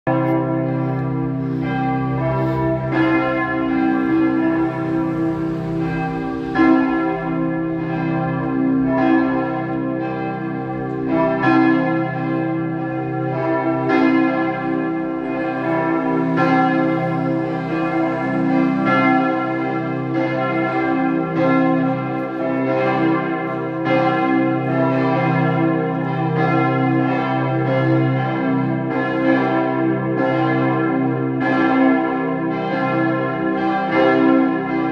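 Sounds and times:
church bells ringing: 0.0s - 34.9s.

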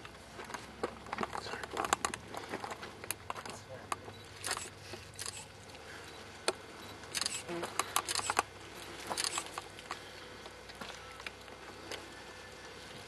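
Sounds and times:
sharp clicks: 3.1s - 5.5s, 6.1s - 8.5s, 9.1s - 10.0s.

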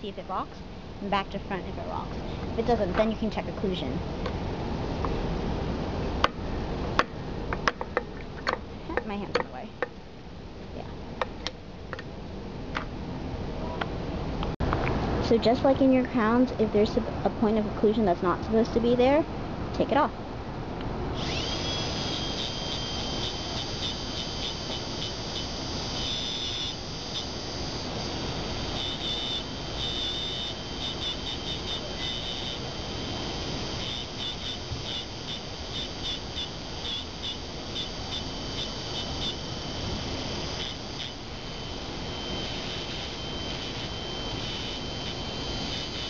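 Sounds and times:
dental handpiece whining: 21.2s - 46.0s.

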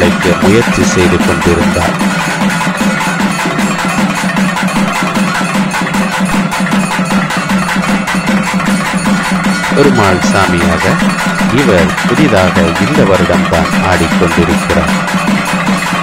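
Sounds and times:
fast steady drumming: 0.0s - 16.0s.

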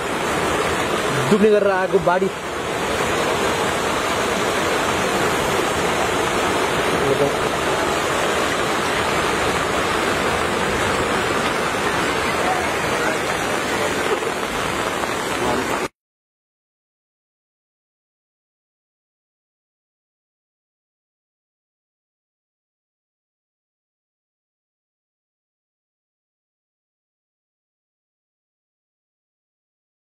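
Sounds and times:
floodwater rushing: 0.0s - 15.9s.

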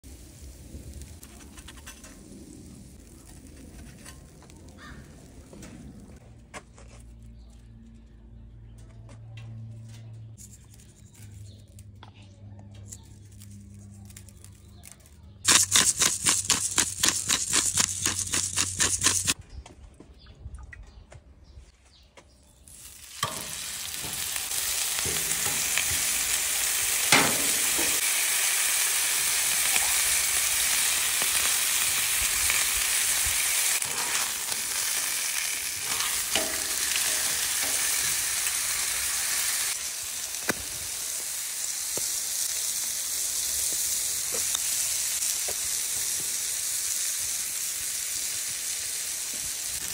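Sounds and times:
steaks sizzling on a griddle: 0.1s - 1.1s, 22.8s - 49.9s.

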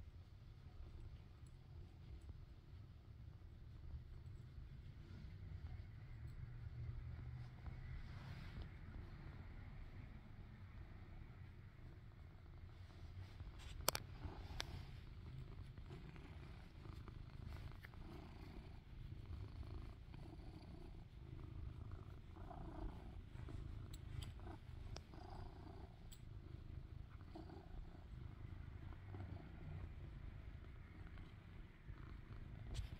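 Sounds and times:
kitten purring: 0.0s - 32.9s
faint clicks: 13.5s - 14.8s.

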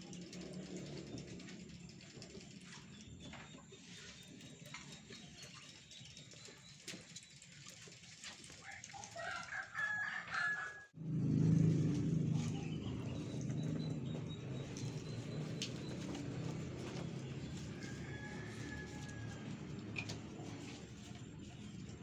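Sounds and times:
rooster crowing: 8.9s - 11.0s, 16.8s - 20.2s.

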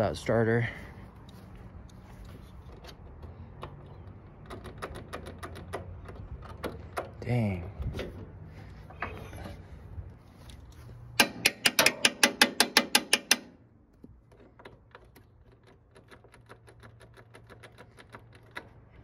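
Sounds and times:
ratchet wrench clicking: 11.2s - 13.6s.

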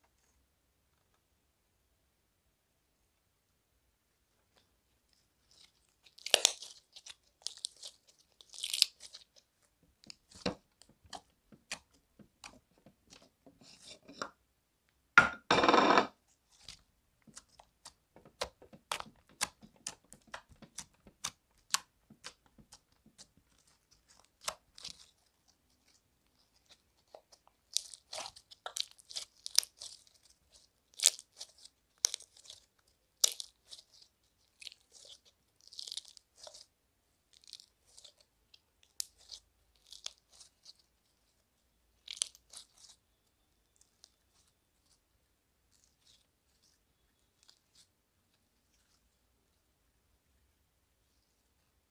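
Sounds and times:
slime clicking and popping: 17.4s - 22.9s.

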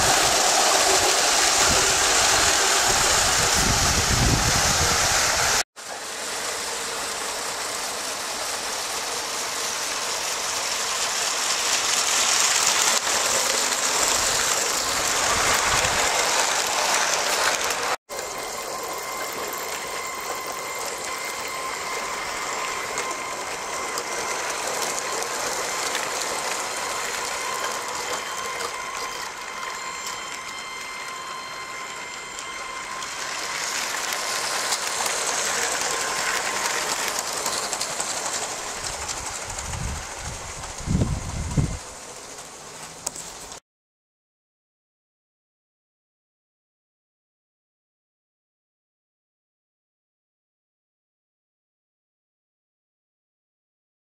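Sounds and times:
toy train wheels rattling: 0.0s - 5.0s, 7.1s - 43.6s
electric motor whirring: 0.0s - 5.6s, 12.0s - 41.8s.

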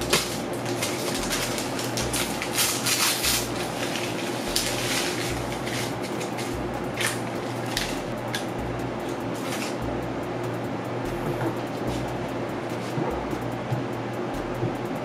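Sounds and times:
paper packet rustling: 0.0s - 8.5s, 9.4s - 9.8s.

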